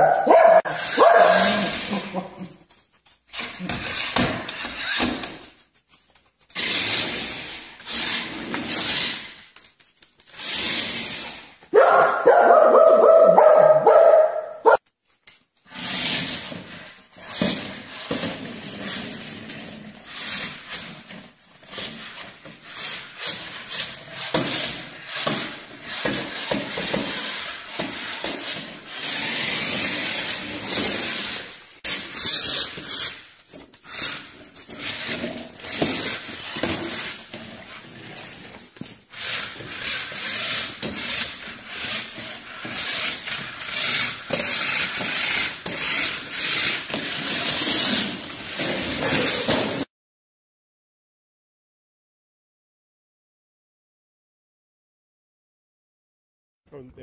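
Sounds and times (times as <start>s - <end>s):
dog barking: 0.0s - 1.8s, 11.7s - 14.8s.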